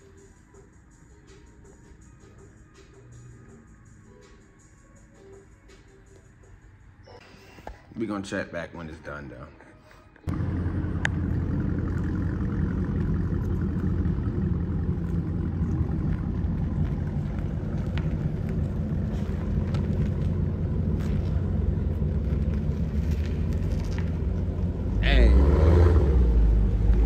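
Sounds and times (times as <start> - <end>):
car engine idling: 10.3 - 27.0.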